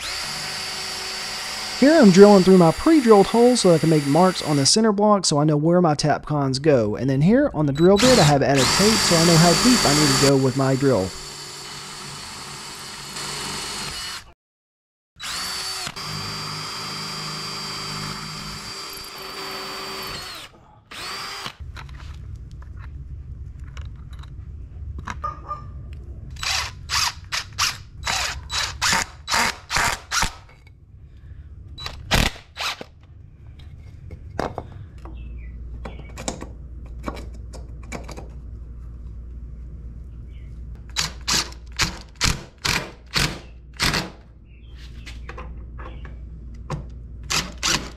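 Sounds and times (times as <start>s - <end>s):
drill whining: 0.0s - 4.7s, 7.8s - 14.4s, 15.2s - 21.6s, 26.4s - 30.4s, 47.3s - 47.9s
low hum: 30.5s - 32.1s.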